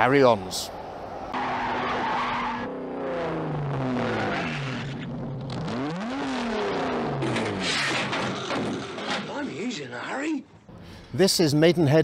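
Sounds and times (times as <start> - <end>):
engines revving: 1.3 - 9.3.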